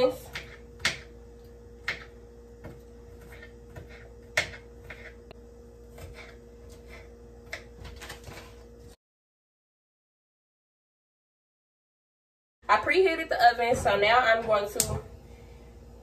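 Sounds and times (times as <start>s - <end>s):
faint steady hum: 0.0s - 9.0s, 12.6s - 16.0s
knife cutting onions: 1.8s - 8.3s.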